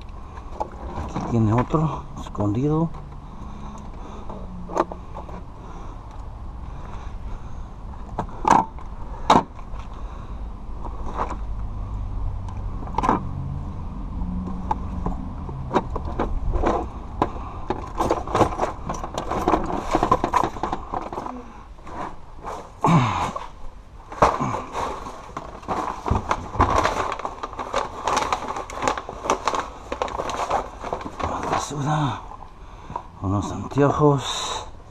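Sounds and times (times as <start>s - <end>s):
rummaging through small objects: 17.9s - 22.8s, 24.1s - 32.2s.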